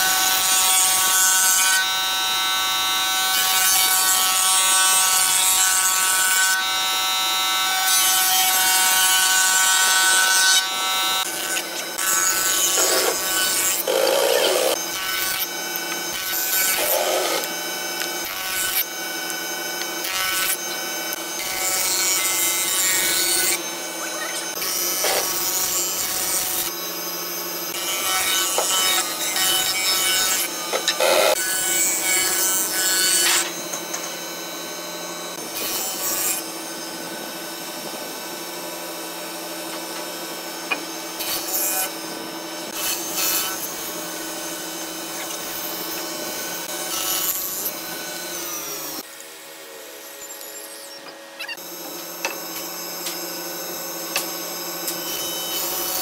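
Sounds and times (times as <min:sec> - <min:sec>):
power tool whining on wood: 0:00.0 - 0:56.0
tool rasping on wood: 0:11.2 - 0:17.6, 0:28.0 - 0:31.5.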